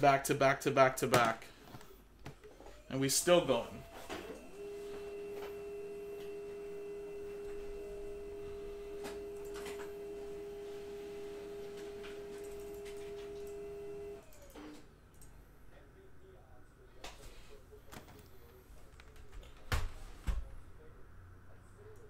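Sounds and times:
steady electronic tone: 2.8 - 14.2.

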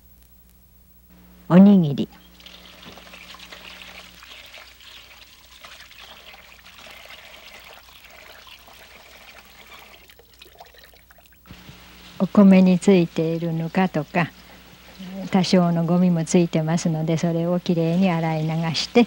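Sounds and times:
water pouring into a bowl: 2.1 - 11.5
rice being rinsed by hand: 2.1 - 12.2.

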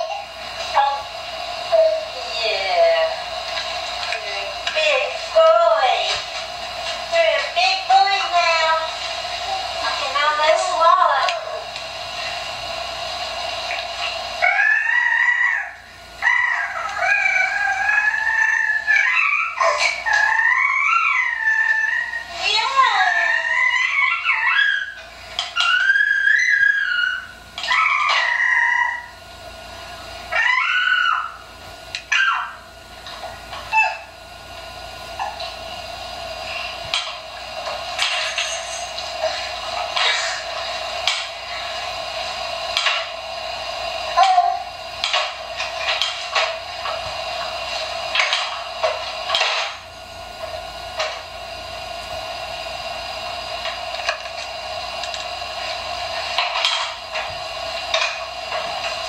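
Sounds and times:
steady hum: 0.0 - 59.0
baby squealing: 14.4 - 22.3, 23.1 - 25.0, 25.6 - 29.1, 30.3 - 31.4.

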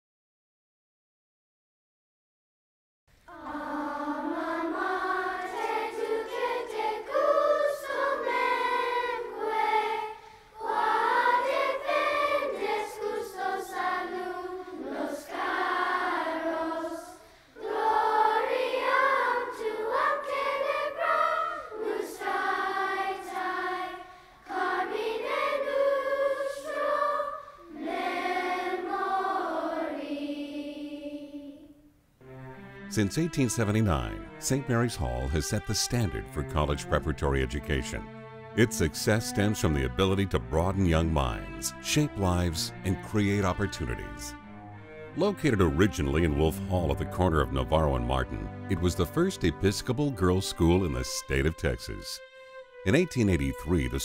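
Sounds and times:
children's choir singing: 3.3 - 31.9, 38.8 - 44.3, 45.2 - 52.0.

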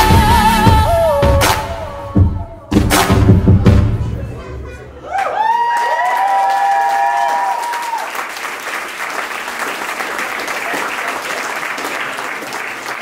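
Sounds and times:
people cheering: 4.9 - 13.0
crowd applauding: 5.1 - 13.0.

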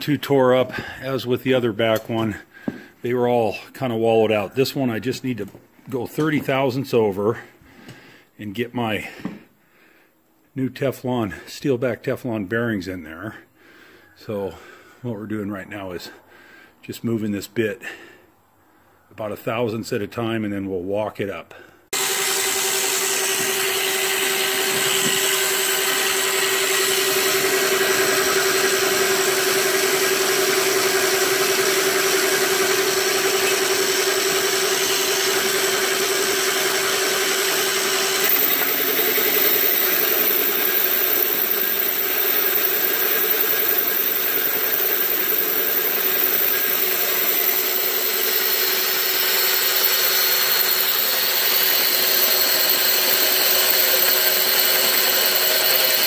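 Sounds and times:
boring bar machine drone: 22.0 - 56.0.

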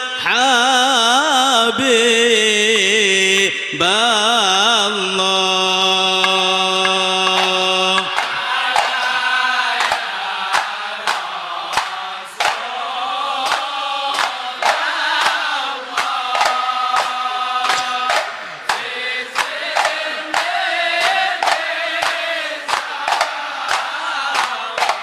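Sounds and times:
men chanting: 0.0 - 25.0
frame drums beating: 6.2 - 25.0.

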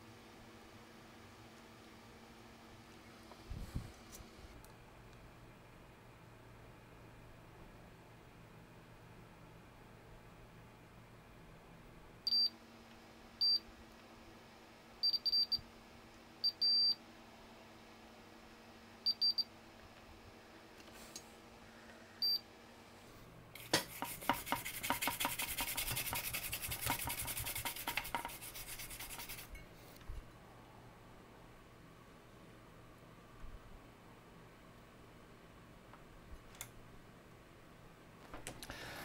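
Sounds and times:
scratchy rubbing with rapid clicks: 23.6 - 29.5.

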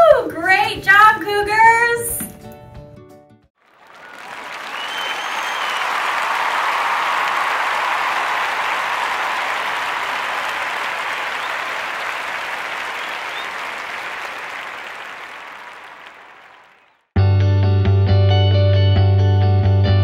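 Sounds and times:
crowd applauding: 3.6 - 17.1.

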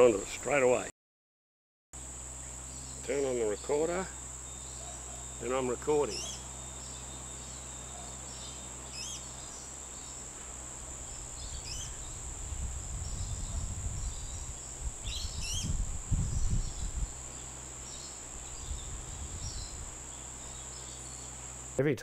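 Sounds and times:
high insect drone: 2.0 - 21.8.

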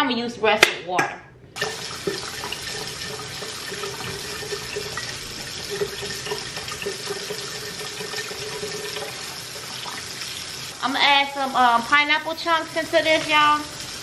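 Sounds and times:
liquid pouring into metal pot: 1.6 - 10.6.

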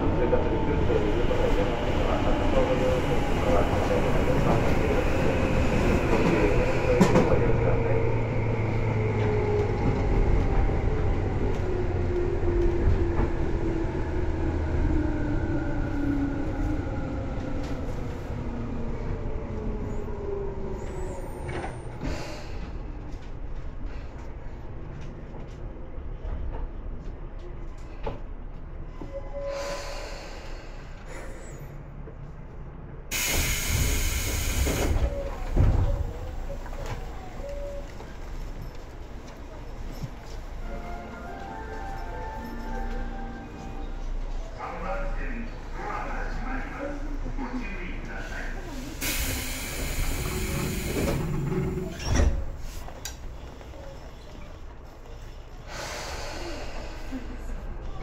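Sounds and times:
air hiss: 33.1 - 35.1, 48.9 - 51.3
train wheels rumbling: 47.2 - 58.0.

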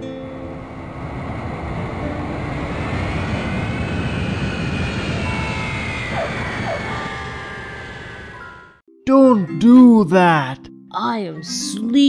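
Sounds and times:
jet engines rumbling and whining: 0.0 - 8.8.

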